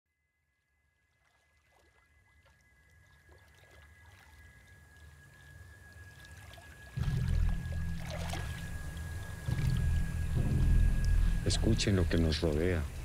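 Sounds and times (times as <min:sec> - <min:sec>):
steady high whine: 0:04.4 - 0:13.0
low rumble: 0:07.0 - 0:13.0.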